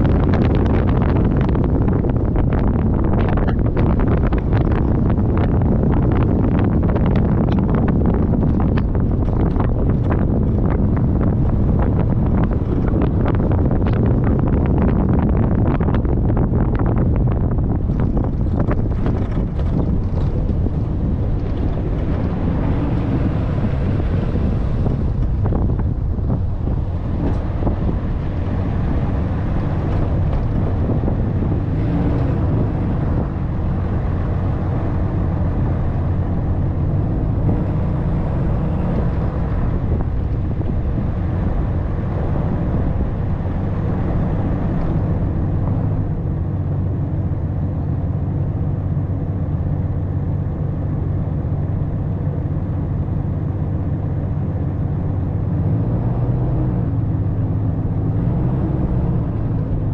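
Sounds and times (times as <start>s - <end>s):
pickup engine and tyre rumble: 0.0s - 59.9s
wind buffeting microphone: 0.0s - 59.9s.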